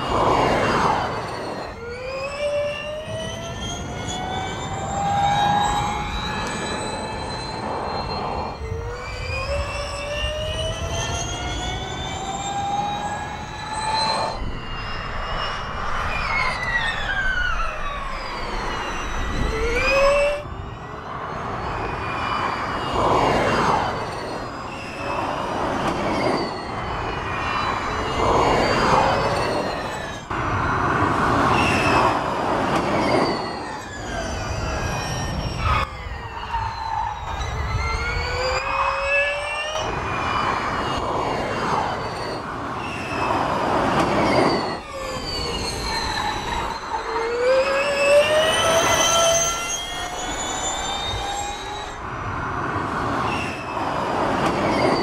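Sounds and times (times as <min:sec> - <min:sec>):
electric race car whining: 0:00.0 - 0:55.0.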